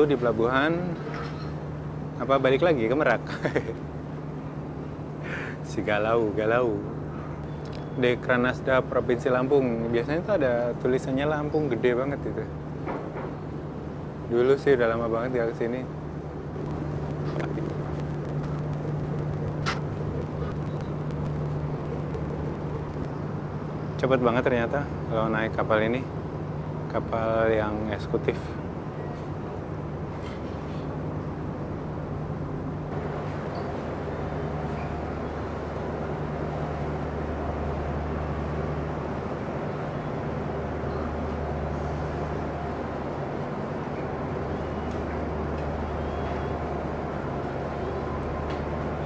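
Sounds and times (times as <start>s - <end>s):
ferry engines droning: 0.0s - 49.0s
sharp click: 16.7s - 21.5s.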